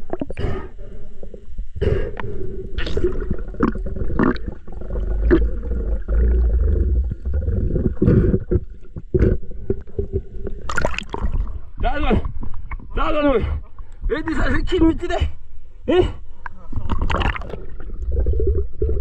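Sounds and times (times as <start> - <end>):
faint steady hum: 0.0 - 19.0
water splashing and gurgling: 2.6 - 12.9, 16.7 - 19.0.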